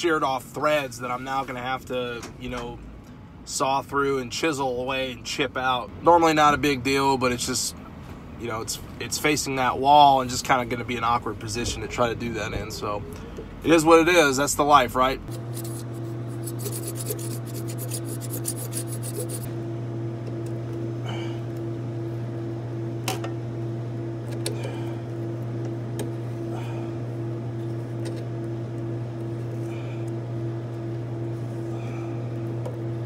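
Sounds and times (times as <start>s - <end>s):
machinery hum: 8.2s - 33.0s
blade sawing metal: 15.3s - 19.5s
metal scrapes and clicks: 16.4s - 19.5s.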